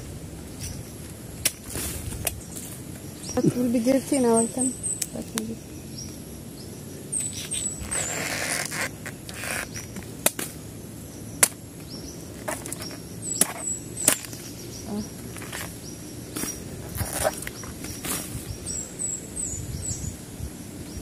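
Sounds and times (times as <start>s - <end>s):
bird chirping: 2.2s - 21.0s
knife chopping with sharp cracks: 10.2s - 10.6s, 11.4s - 11.6s.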